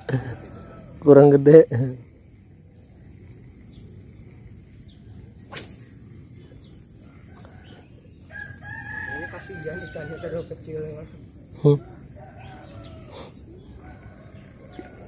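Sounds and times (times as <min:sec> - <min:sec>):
rooster crowing: 0:00.0 - 0:01.2, 0:07.0 - 0:10.7, 0:11.8 - 0:15.0.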